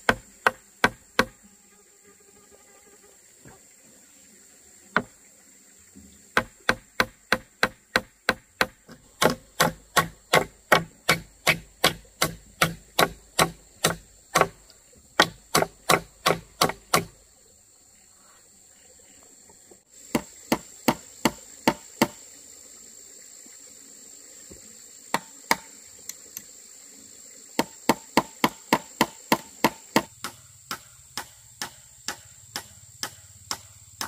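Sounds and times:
blade chopping wood: 0:00.0 - 0:01.4, 0:06.4 - 0:17.2, 0:20.1 - 0:22.2, 0:25.1 - 0:25.7, 0:27.6 - 0:34.0.

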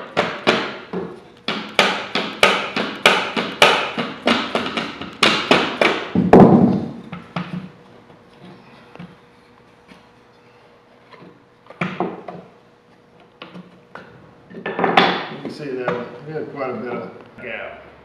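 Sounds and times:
rubber mallet striking wood: 0:00.0 - 0:07.6.

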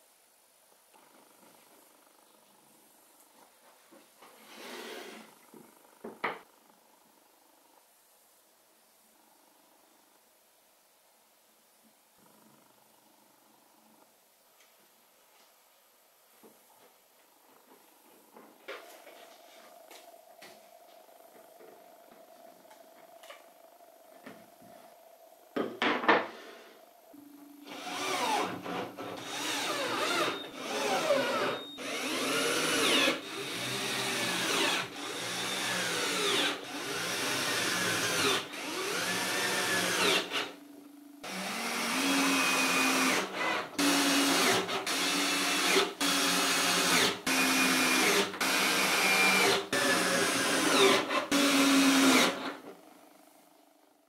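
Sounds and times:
cordless drill boring into wood: 0:27.6 - 0:40.5, 0:41.2 - 0:52.6.

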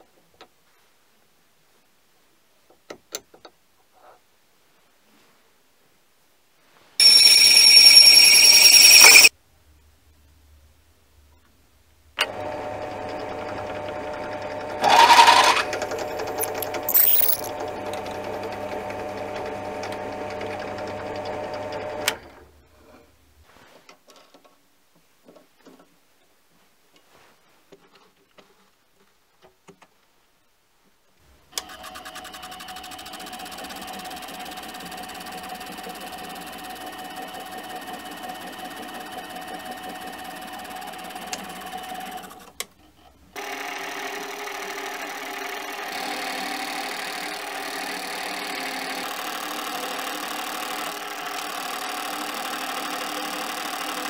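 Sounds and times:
cutter screeching: 0:14.8 - 0:15.7.

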